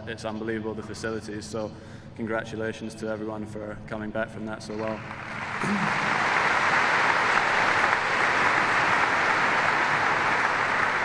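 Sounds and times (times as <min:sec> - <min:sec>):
crowd applauding: 0:05.0 - 0:11.0.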